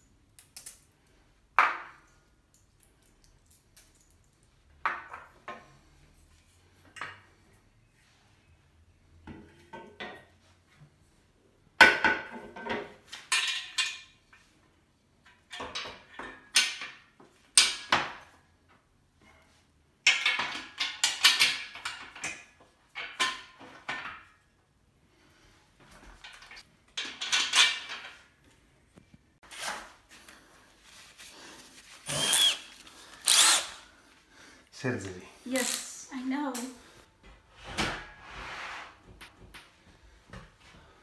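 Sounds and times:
metal parts clanking and clicking: 26.2s - 28.2s.

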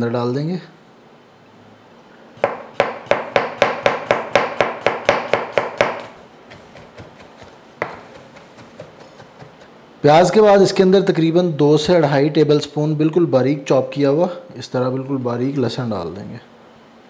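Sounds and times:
knife chopping on cutting board: 2.4s - 9.7s.

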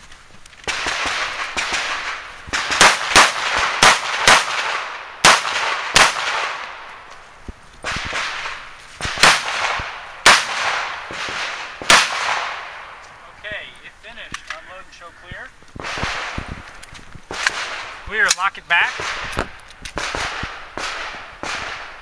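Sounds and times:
rifle shots with echo: 0.7s - 6.9s, 7.8s - 13.0s, 15.8s - 16.5s, 17.3s - 22.0s.

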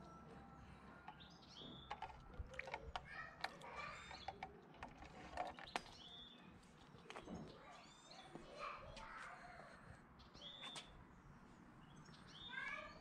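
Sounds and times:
small birds chirping: 0.0s - 13.0s
cat pawing at water: 1.9s - 5.9s.

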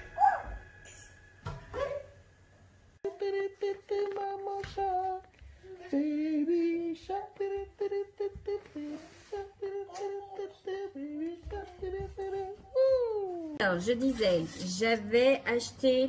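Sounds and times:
person humming a tune: 3.0s - 13.6s.

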